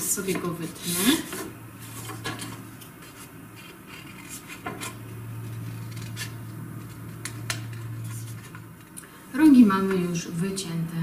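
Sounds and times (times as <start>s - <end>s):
steady low hum: 0.0s - 11.0s
paper handling: 1.8s - 8.9s.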